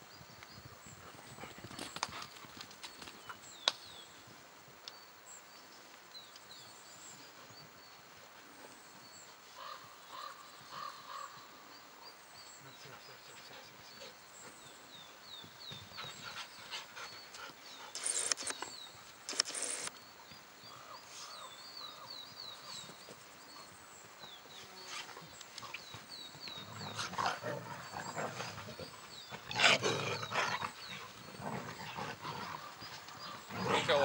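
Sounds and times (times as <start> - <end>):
small bird chirping: 13.4 - 34.0.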